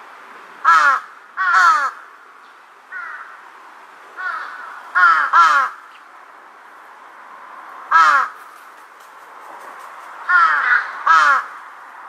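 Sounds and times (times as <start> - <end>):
crows cawing: 0.6 - 2.1, 2.9 - 3.4, 4.2 - 6.0, 7.9 - 8.6, 10.2 - 11.6.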